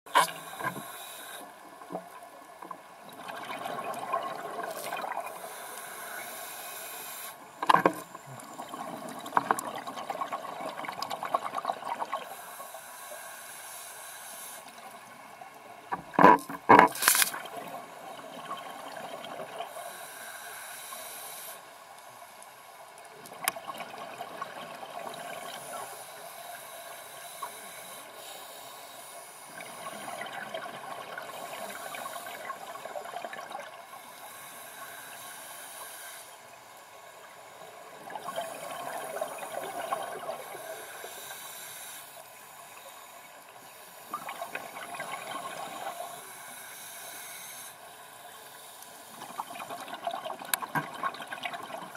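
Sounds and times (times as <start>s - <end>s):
regulator hissing inhalation: 0.2s - 1.5s, 5.3s - 7.4s, 12.2s - 14.7s, 19.7s - 21.7s, 34.0s - 36.4s, 40.4s - 42.2s, 46.0s - 47.8s.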